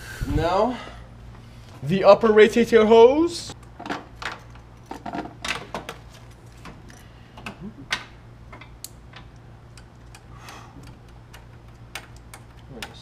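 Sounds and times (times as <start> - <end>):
small ratchet clicking: 8.8 - 13.0.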